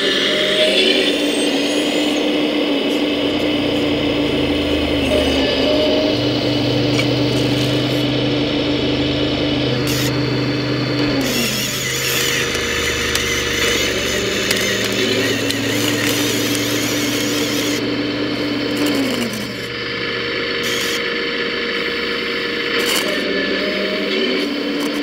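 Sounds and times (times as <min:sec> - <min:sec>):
hydraulic pump whining: 0:00.0 - 0:25.0.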